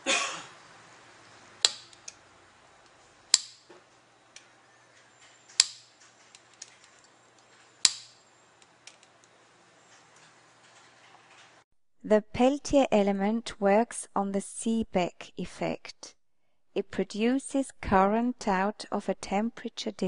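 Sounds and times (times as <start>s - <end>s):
switch clicks: 1.6s - 2.2s, 3.3s - 3.6s, 5.6s - 5.8s, 7.8s - 8.2s.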